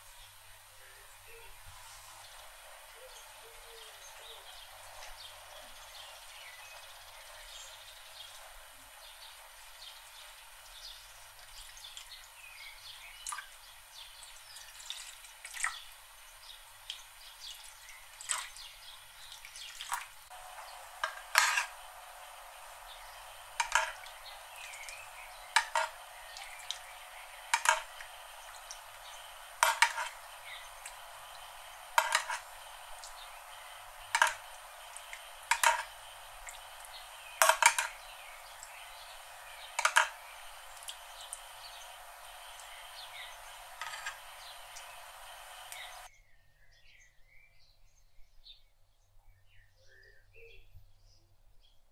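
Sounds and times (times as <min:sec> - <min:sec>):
salt patter on chicken: 0:13.1 - 0:16.0, 0:16.6 - 0:46.1
liquid splashing: 0:18.1 - 0:46.1
spoon clinking on enamel tray: 0:21.0 - 0:21.8, 0:23.6 - 0:33.1, 0:34.1 - 0:36.0, 0:37.4 - 0:38.0, 0:39.8 - 0:40.3, 0:43.8 - 0:44.2.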